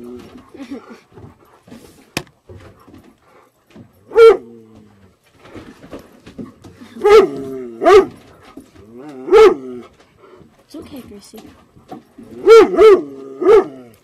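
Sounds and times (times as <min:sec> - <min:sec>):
large dog barking: 0:04.0 - 0:04.6, 0:07.0 - 0:08.3, 0:09.0 - 0:10.0, 0:12.3 - 0:14.0.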